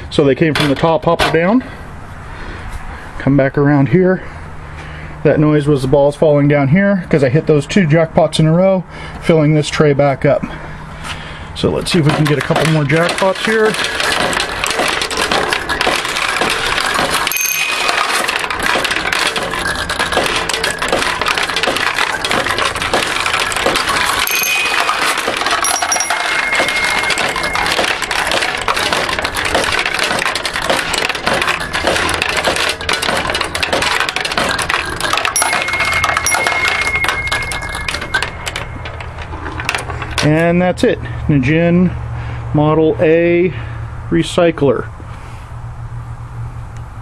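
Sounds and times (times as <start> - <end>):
steel balls clattering in machine: 11.6 - 40.6
brief ringing tones: 17.3 - 18.2, 24.2 - 28.4, 35.4 - 39.3.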